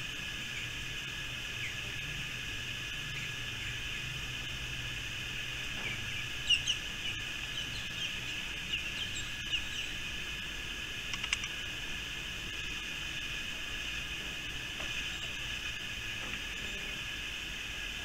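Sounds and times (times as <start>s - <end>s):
insects droning: 0.0s - 18.0s
birds chirping: 5.3s - 11.6s, 14.7s - 17.0s.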